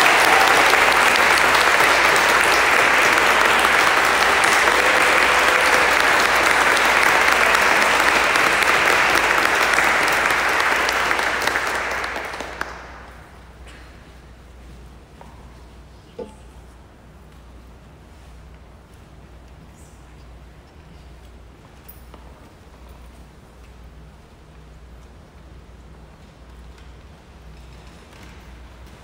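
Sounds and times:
audience applause: 0.0s - 13.4s.

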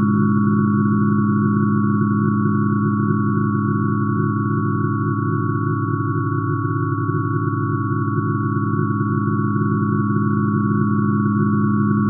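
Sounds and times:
high sine tones: 0.0s - 12.0s.

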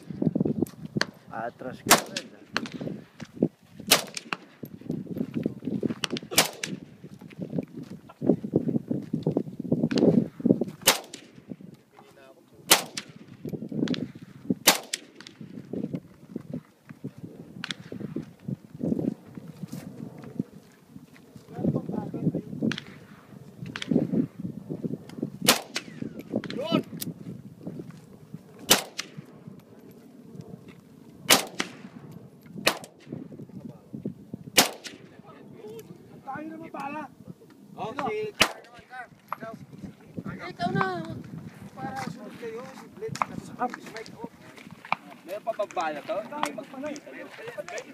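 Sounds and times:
rifle shots: 1.8s - 2.8s, 3.9s - 4.6s, 6.0s - 6.9s, 10.8s - 11.5s, 12.7s - 15.5s, 25.4s - 26.6s, 28.6s - 29.3s, 31.3s - 32.0s, 32.6s - 33.1s, 34.6s - 35.2s, 38.4s - 38.8s.

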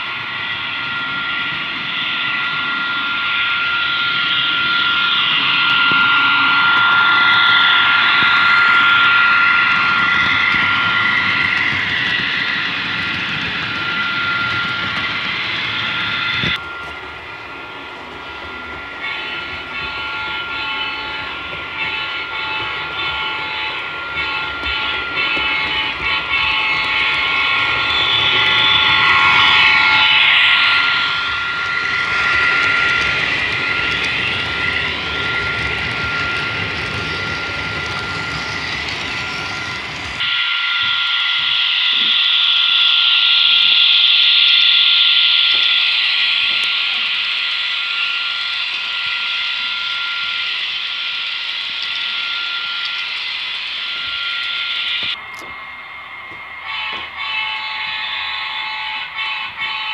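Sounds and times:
model diesel locomotive engine sound: 0.0s - 59.9s
locomotive horn: 18.6s - 41.8s, 56.6s - 59.9s.

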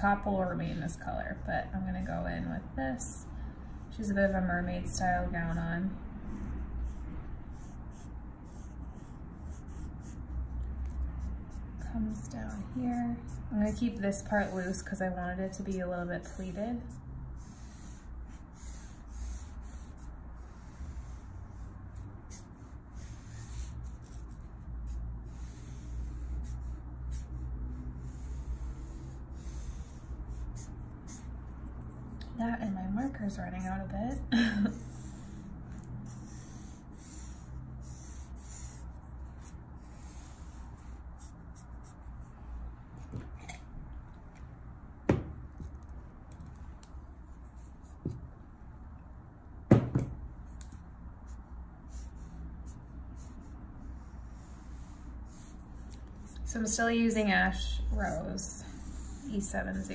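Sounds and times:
marker swishing on paper: 6.8s - 14.9s, 15.5s - 31.3s, 34.9s - 42.2s, 50.5s - 56.4s
plastic marker knocks and clicks: 45.1s - 45.7s, 49.7s - 50.7s.

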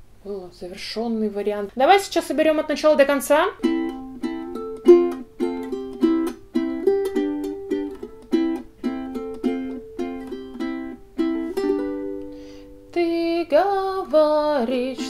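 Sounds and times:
ukulele fingerpicked: 3.6s - 15.0s.

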